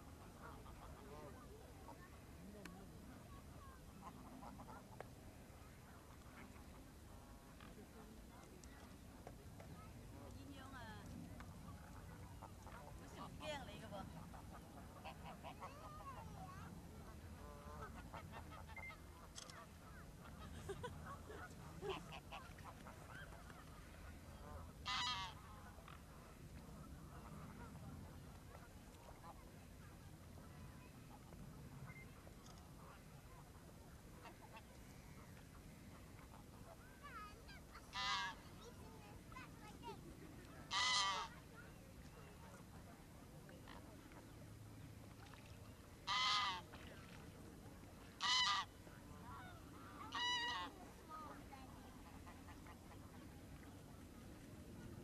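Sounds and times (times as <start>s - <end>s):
low steady rumble: 0.0s - 55.0s
waterfowl calls: 11.7s - 16.3s, 17.0s - 29.5s, 37.5s - 38.6s, 40.6s - 41.4s, 45.1s - 47.1s, 48.2s - 50.8s
harsh waterfowl call: 24.5s - 26.0s, 37.9s - 38.4s, 40.7s - 41.4s, 46.0s - 46.6s, 48.2s - 48.7s, 49.3s - 50.8s
faint bird calls: 40.6s - 42.4s.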